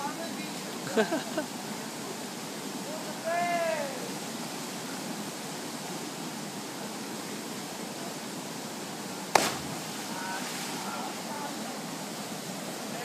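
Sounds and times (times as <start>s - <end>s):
flowing water: 0.0s - 13.0s
person splashing into pool: 9.4s - 10.7s.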